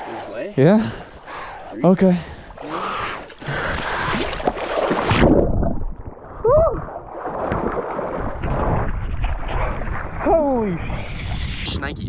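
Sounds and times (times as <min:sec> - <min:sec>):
muffled water churning: 0:00.0 - 0:11.7
person splashing into river: 0:03.7 - 0:09.4.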